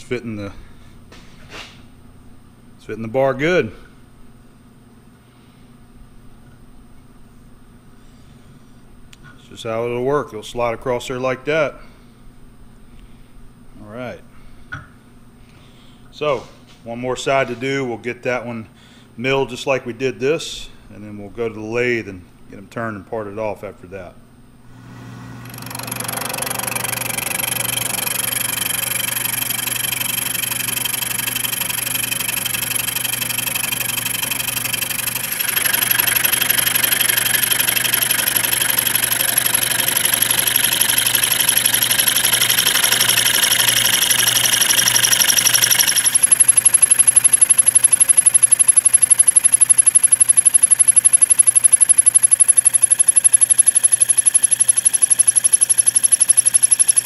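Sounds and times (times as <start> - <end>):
boring head cutting metal: 24.8 - 57.0
milling machine spindle running: 24.8 - 57.0.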